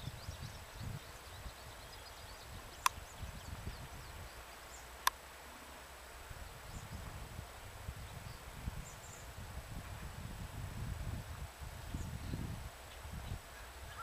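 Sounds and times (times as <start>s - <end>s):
faint bird or insect chirps: 0.0s - 5.7s, 8.0s - 9.3s, 11.9s - 14.0s.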